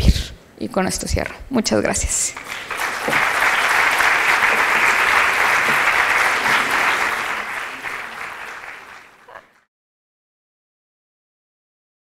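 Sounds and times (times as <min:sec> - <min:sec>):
audience applauding: 0:02.3 - 0:09.6.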